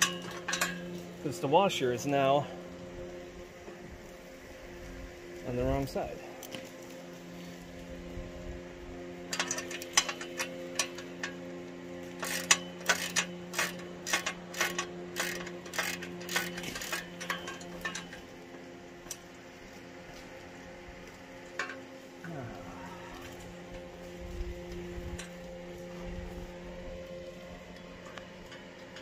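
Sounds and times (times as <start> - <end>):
faint steady hum: 0.0 - 29.0
metallic clicks of hand tools: 12.2 - 18.2.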